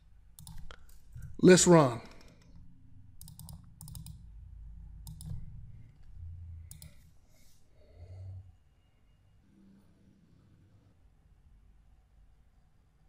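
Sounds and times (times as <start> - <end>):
mouse and keyboard clicking: 0.4 - 1.2, 2.0 - 2.6, 3.2 - 4.2, 5.0 - 6.1, 6.7 - 7.1.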